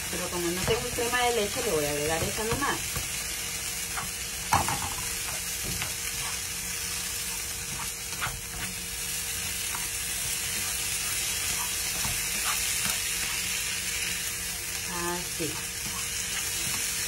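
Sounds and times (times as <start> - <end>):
food sizzling in frying pan: 0.0 - 17.0
spatula scraping pan: 3.8 - 17.0.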